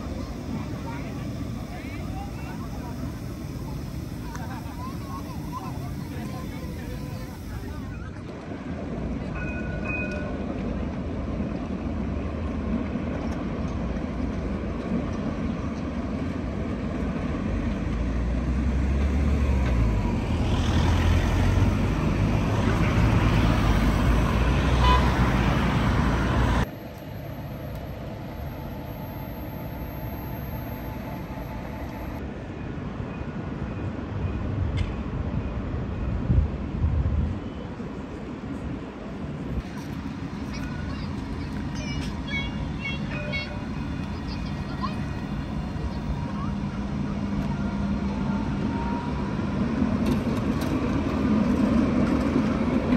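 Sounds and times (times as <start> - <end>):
street noise: 0.0 - 52.9
tram rumble: 0.0 - 52.9.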